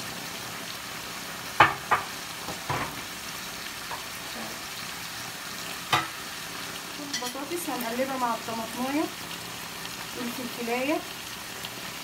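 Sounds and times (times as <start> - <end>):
meat and vegetables sizzling in a pan: 0.0 - 12.0
sharp knocks against a pan: 1.6 - 3.0, 5.9 - 6.2.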